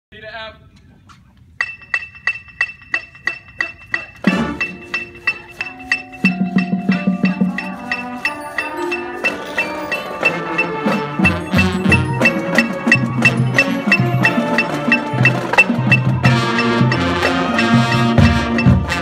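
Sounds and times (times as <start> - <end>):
metronome clicks: 1.6 - 18.8
marching band brass playing: 4.2 - 19.0.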